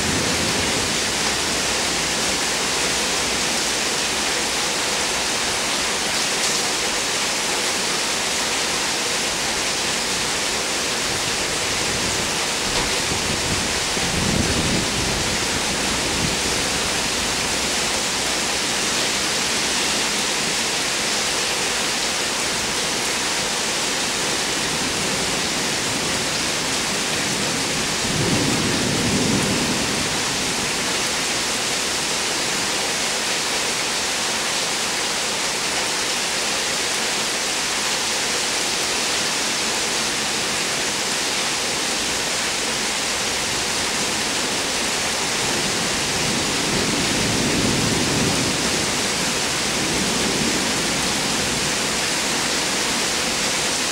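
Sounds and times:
thunder rumbling: 0.0s - 2.5s, 11.6s - 18.6s, 24.8s - 30.9s
heavy rain: 0.0s - 53.9s.

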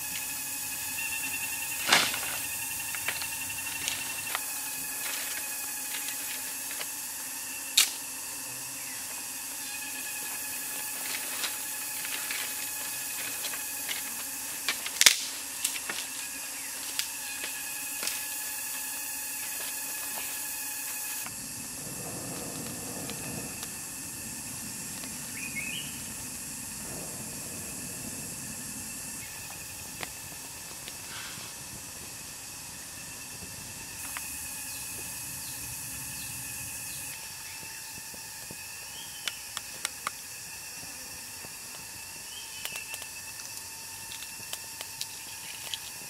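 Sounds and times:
fire burning with steady hiss: 0.0s - 46.0s
insects droning: 0.0s - 46.0s
sharp snaps of fire: 7.8s - 8.0s, 14.6s - 16.0s, 21.8s - 23.8s.

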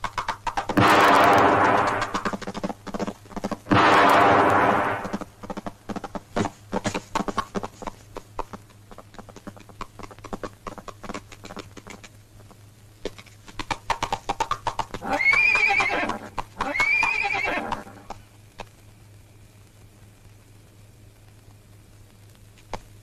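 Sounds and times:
horse hooves galloping: 0.0s - 18.9s
low steady hum: 0.0s - 23.0s
horse whinnying: 15.0s - 18.1s.

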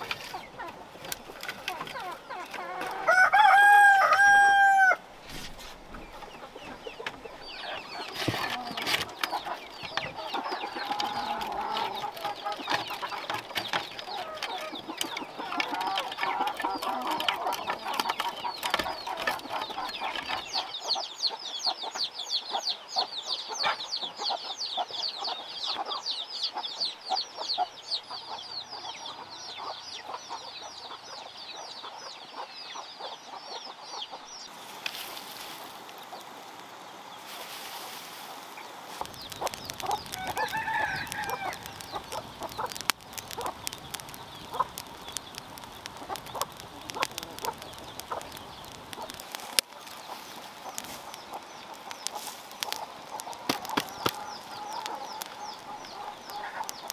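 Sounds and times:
straw rustling: 0.0s - 4.5s, 5.1s - 20.5s, 34.5s - 56.9s
hens clucking: 0.0s - 5.0s, 5.9s - 22.6s, 37.3s - 56.9s
clicks of eggs being gathered: 0.0s - 20.6s, 38.4s - 56.9s
rooster crowing: 2.6s - 5.0s, 40.0s - 42.2s
rapid high-pitched chirping: 39.0s - 49.2s.

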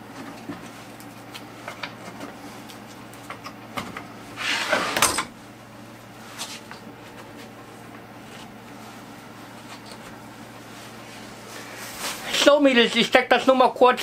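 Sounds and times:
board scraping against wood: 4.4s - 5.1s.

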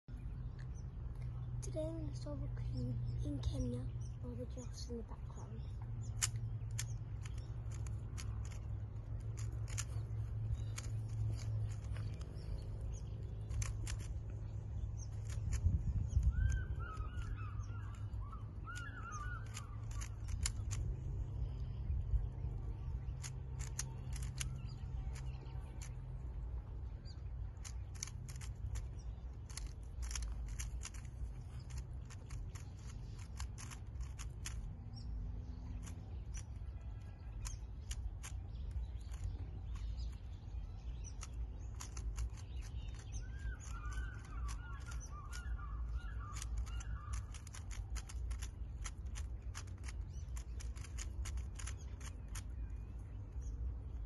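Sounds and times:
steady low rumble: 0.1s - 54.0s
puzzle cube plastic clicks: 6.0s - 21.5s, 23.2s - 26.2s, 27.5s - 34.7s, 35.7s - 52.7s
bird calling: 9.4s - 20.8s, 35.7s - 53.0s.

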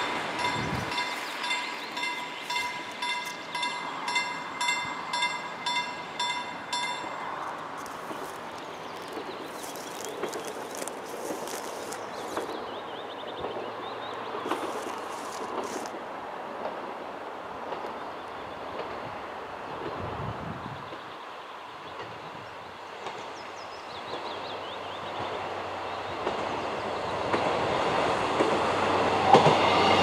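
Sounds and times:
wind: 0.0s - 30.0s
rustling: 7.8s - 12.6s, 14.4s - 16.0s.

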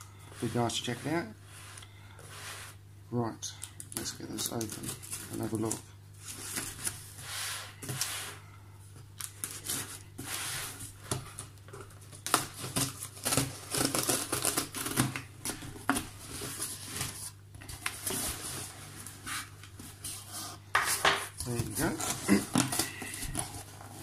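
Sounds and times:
packing tape tearing: 11.3s - 18.5s, 21.4s - 24.0s.

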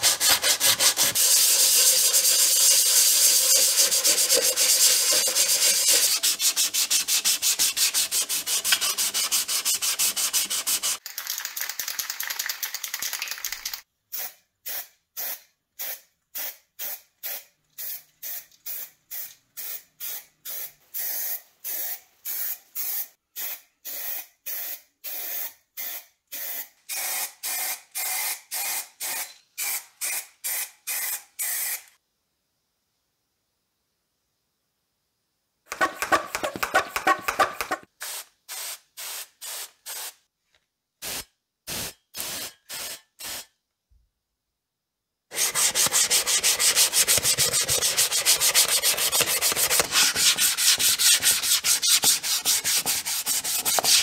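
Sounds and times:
sandpaper rubbing on metal: 0.0s - 11.0s, 45.3s - 54.0s
aerosol spray can hisses: 1.2s - 6.3s, 38.0s - 40.2s, 41.0s - 43.5s.

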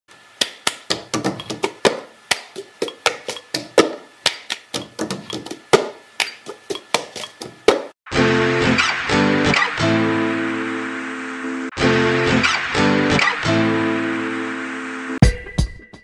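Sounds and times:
sharp percussive taps and knocks: 0.4s - 8.0s.

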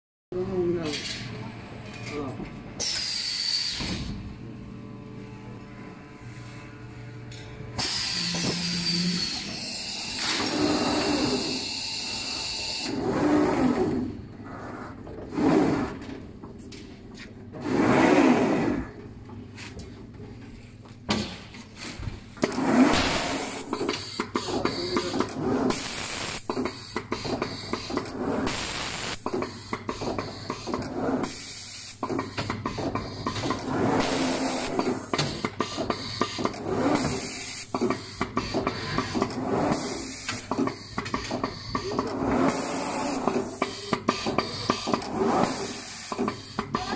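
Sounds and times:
machine hiss and motor whir: 2.8s - 4.4s, 6.1s - 16.2s, 22.2s - 46.9s.

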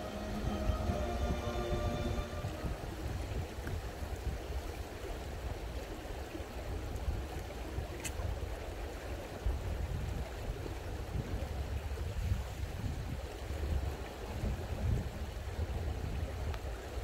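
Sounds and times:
low rumble: 0.0s - 3.6s
stream water flowing: 0.0s - 17.0s.

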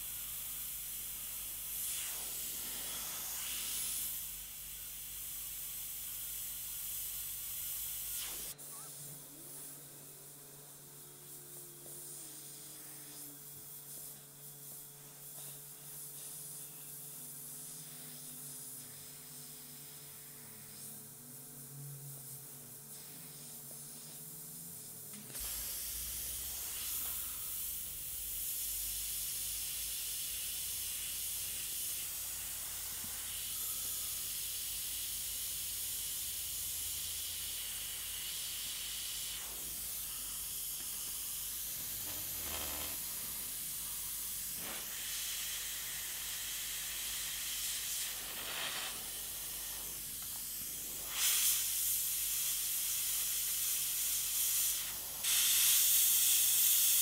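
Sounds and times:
airbrush air hiss: 0.0s - 57.0s
airbrush puffs: 1.6s - 4.3s, 8.0s - 21.1s, 25.4s - 27.8s, 30.7s - 57.0s.

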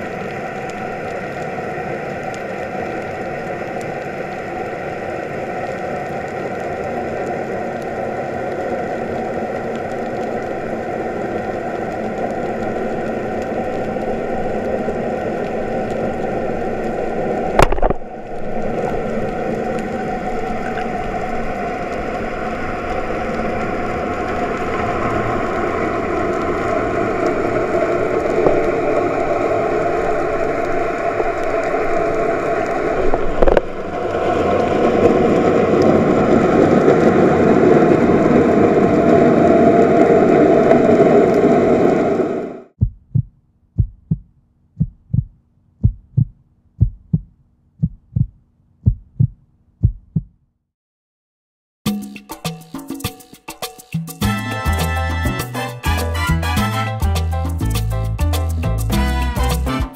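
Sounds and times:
muffled underwater hum: 6.6s - 33.7s.

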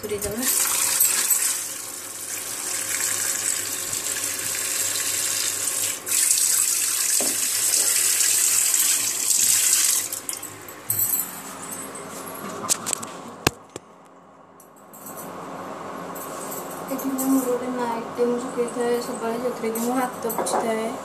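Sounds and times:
tap water running into steel bowl: 0.3s - 10.3s.

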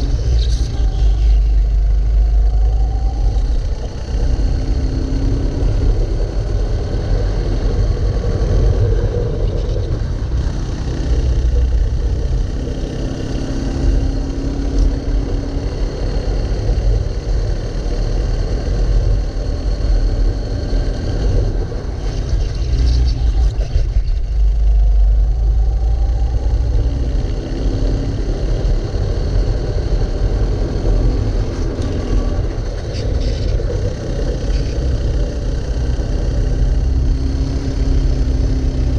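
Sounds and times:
kart engine revving: 26.4s - 38.9s.

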